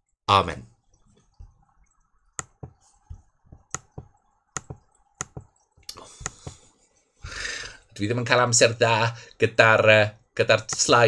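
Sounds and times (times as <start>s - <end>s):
computer clicks and key taps: 2.4s - 6.6s.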